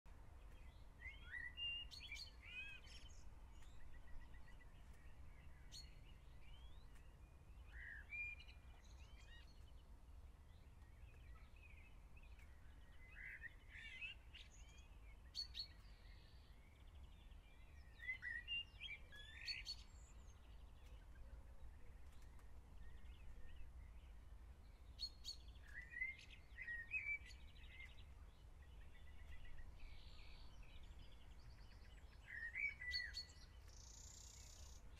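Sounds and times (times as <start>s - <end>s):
small birds chirping: 0.1s - 34.9s.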